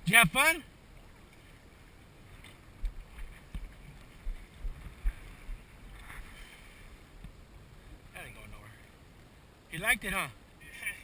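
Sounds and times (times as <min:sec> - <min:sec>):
faint wind: 0:00.0 - 0:11.0
dull low thumps: 0:02.8 - 0:05.7.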